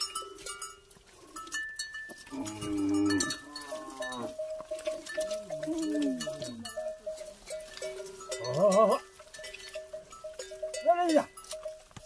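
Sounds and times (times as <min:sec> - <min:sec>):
neck bell clanking: 0:00.0 - 0:12.0
calf calling: 0:02.3 - 0:11.8.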